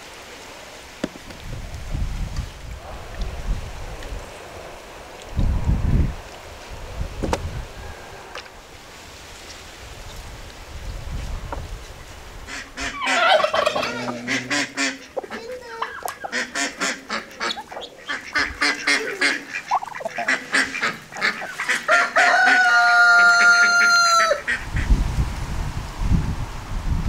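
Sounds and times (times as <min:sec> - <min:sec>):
long drawn-out chicken call: 0:07.6 - 0:08.7, 0:12.5 - 0:15.2, 0:15.8 - 0:24.6
chickens clucking and squawking: 0:12.4 - 0:24.9.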